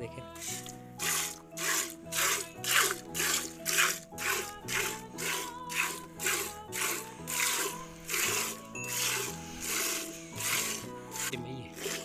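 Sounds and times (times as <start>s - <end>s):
background music: 0.0s - 12.0s
milk squirting into bucket: 0.4s - 12.0s.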